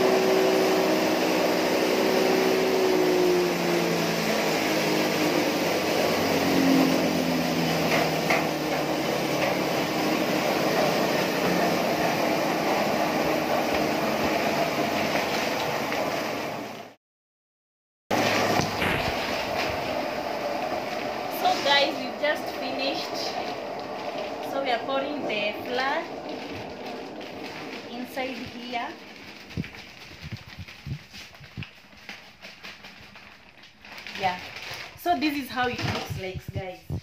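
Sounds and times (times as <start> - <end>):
hammer mill grinding: 0.0 - 16.8, 18.1 - 30.1.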